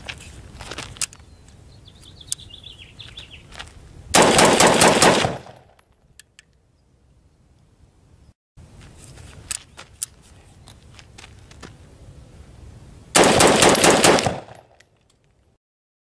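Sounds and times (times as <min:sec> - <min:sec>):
rifle rapid fire: 0:04.2 - 0:05.7, 0:13.2 - 0:14.7.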